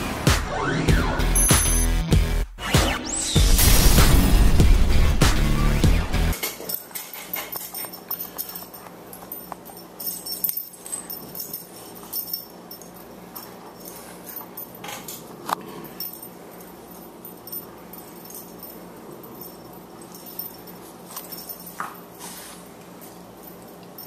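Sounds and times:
collar tags jingling: 0:06.4 - 0:24.0.

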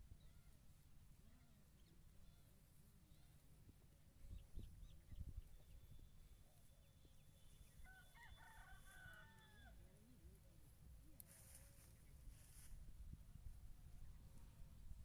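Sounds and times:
distant rooster crowing: 0:07.6 - 0:09.9.

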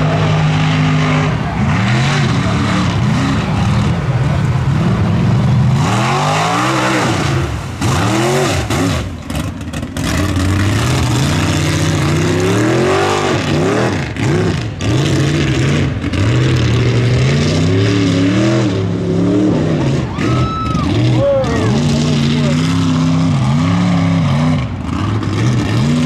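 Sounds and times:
truck engine revving: 0:00.0 - 0:26.0.

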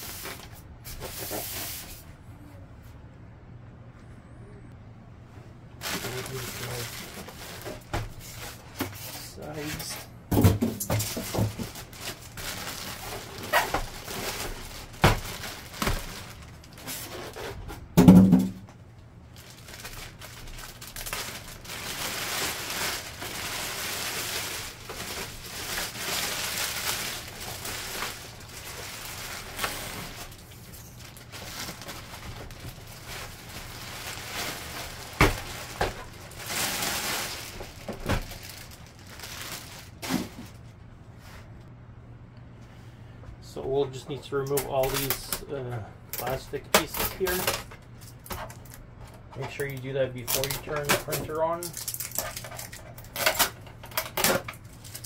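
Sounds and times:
plastic packaging crinkling: 0:05.8 - 0:08.6, 0:10.9 - 0:17.6, 0:19.3 - 0:40.6, 0:44.5 - 0:45.4, 0:46.2 - 0:55.0
handling knocks and thuds: 0:10.3 - 0:12.0, 0:17.6 - 0:18.7, 0:34.5 - 0:36.2.

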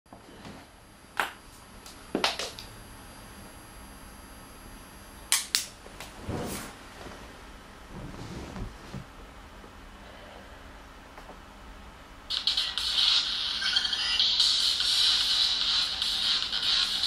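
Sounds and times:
soft rustle: 0:06.1 - 0:09.1.

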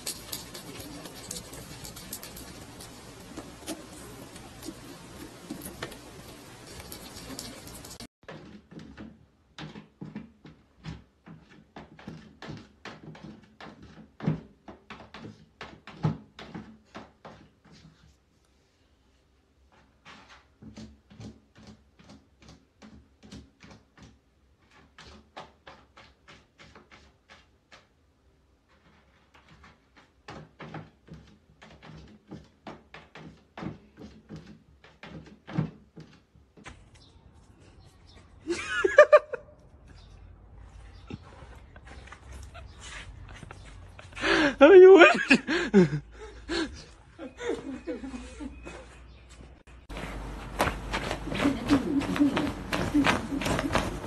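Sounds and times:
cat scraping in litter: 0:00.0 - 0:08.1.

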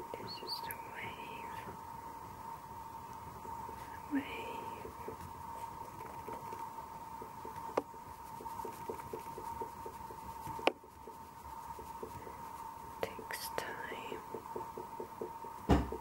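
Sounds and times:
steady high hum: 0:00.0 - 0:16.0
oil pastel scratching paper: 0:06.0 - 0:15.6.

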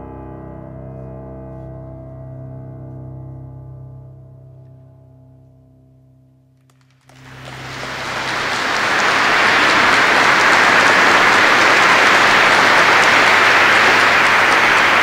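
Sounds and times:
audience applauding: 0:06.7 - 0:15.0.

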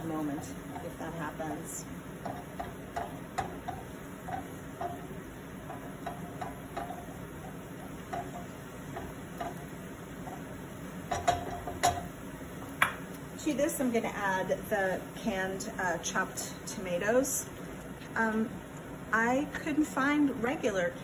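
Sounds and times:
food frying in a pan: 0:00.0 - 0:21.0
spatula knocking against pan: 0:02.2 - 0:12.1.

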